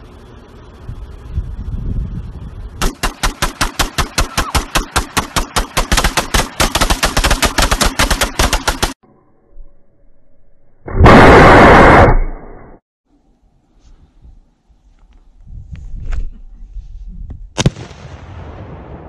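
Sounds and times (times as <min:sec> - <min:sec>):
rapid rifle fire: 0:02.8 - 0:09.0.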